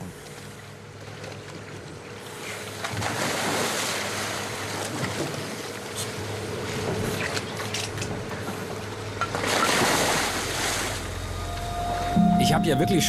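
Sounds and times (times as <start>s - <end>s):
boat hum: 0.0s - 13.0s
churning rushing water: 2.5s - 12.1s
splash into the sea: 2.8s - 5.6s.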